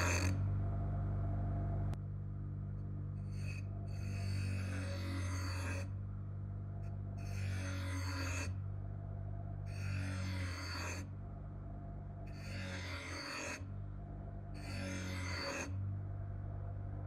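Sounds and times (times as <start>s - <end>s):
knife blade grinding: 0.0s - 0.4s, 3.2s - 5.9s, 6.8s - 8.6s, 9.7s - 11.1s, 12.3s - 13.6s
bench grinder motor humming: 0.0s - 0.8s, 3.2s - 6.0s, 6.8s - 8.6s, 9.6s - 11.2s, 12.2s - 13.8s, 14.4s - 15.8s.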